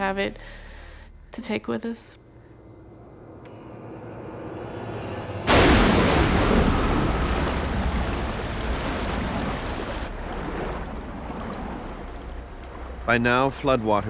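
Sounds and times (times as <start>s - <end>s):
low rumble: 2.1s - 14.0s
loud rush of noise: 4.4s - 11.0s.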